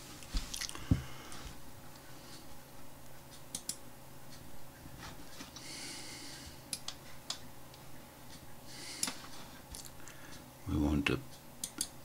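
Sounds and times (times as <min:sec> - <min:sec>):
low steady hum: 0:00.0 - 0:12.0
soft breath: 0:00.7 - 0:02.6, 0:05.4 - 0:07.2, 0:08.7 - 0:10.5
computer mouse clicks: 0:03.4 - 0:03.8, 0:11.6 - 0:12.0.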